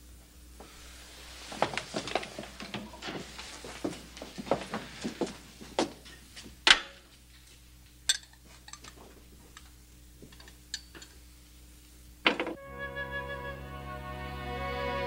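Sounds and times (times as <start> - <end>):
footsteps: 0.6 - 7.7.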